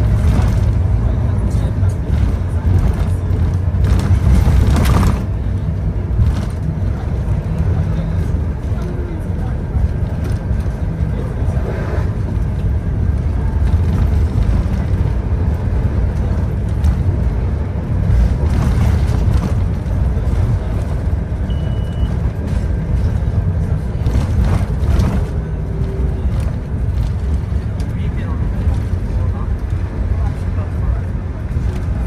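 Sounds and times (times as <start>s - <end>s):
bus engine rumble: 0.0s - 32.0s
road noise and rattles: 0.0s - 32.0s
high beep: 21.4s - 22.2s.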